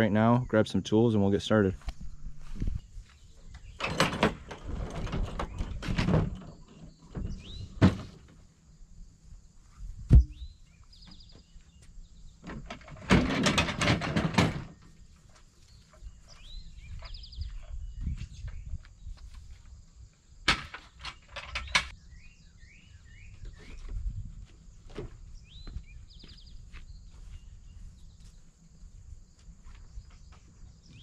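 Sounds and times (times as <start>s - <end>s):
tools rummaging and knocking: 3.8s - 8.2s, 12.4s - 14.9s, 20.5s - 21.9s.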